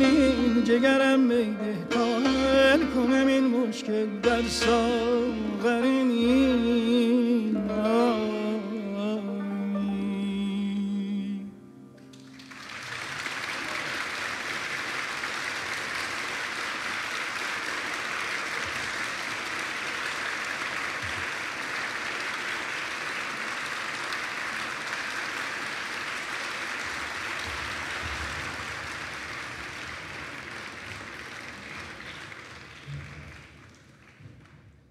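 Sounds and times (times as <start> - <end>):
audience applauding: 12.0 - 34.9.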